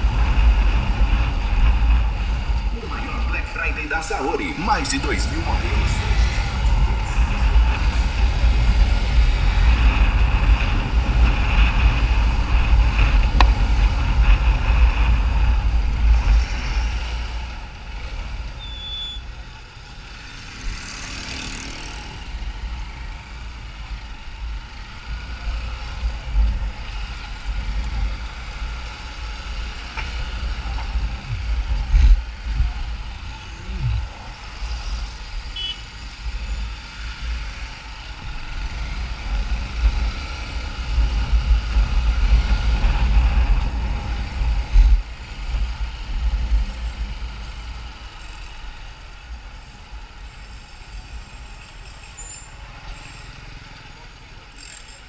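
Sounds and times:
wind rumble on microphone: 0.0 - 18.6, 22.2 - 50.1
passing traffic: 0.0 - 55.0
motorcycle engine: 5.1 - 44.6.

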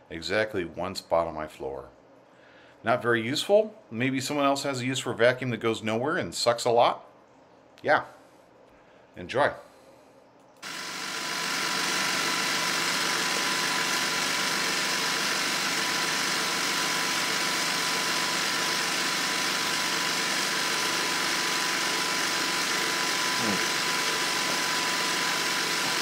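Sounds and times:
robot vacuum hissing and whining: 10.6 - 26.0.

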